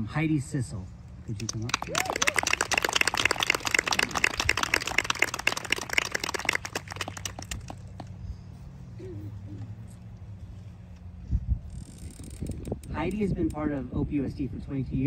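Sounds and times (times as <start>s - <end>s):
audience clapping: 1.4s - 8.1s.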